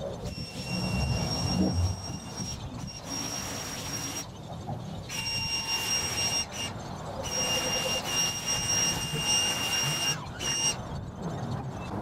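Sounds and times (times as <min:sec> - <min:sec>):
pressure washer whine: 0:00.3 - 0:04.3.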